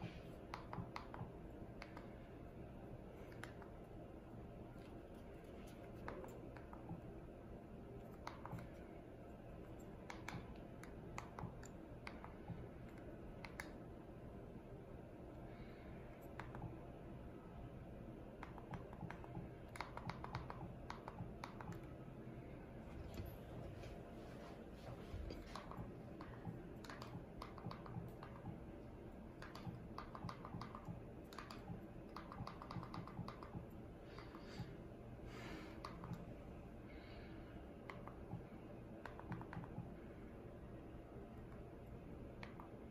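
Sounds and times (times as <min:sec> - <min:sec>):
low steady hum: 0:00.0 - 0:42.9
remote buttons clicking: 0:29.3 - 0:34.4.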